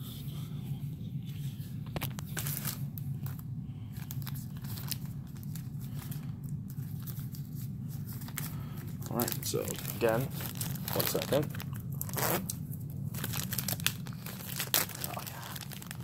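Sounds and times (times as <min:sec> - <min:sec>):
plastic bag crinkling: 0:02.0 - 0:16.0.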